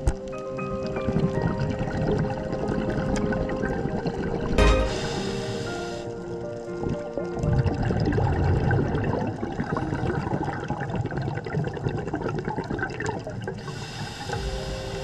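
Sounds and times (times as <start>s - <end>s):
bubbles rushing underwater: 0.0s - 15.0s
high steady hiss: 4.6s - 6.2s, 13.7s - 15.0s.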